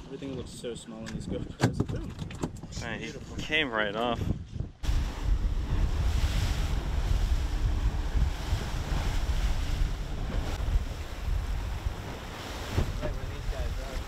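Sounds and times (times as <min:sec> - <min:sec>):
wind buffeting microphone: 0:00.2 - 0:14.0
outboard motors humming: 0:04.8 - 0:14.0
water rushing past hull: 0:04.8 - 0:14.0.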